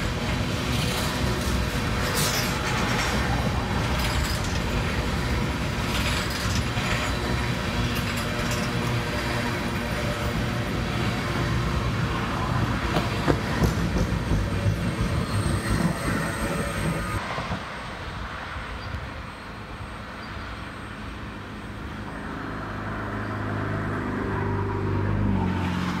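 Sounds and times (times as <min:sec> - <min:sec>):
wheels clicking on rails: 0:00.0 - 0:17.6
freight train rumbling past: 0:00.0 - 0:19.9.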